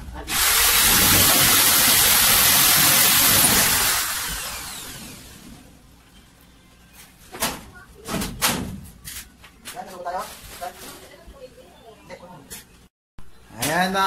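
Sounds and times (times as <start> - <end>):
electric drill running: 0.3 - 5.4.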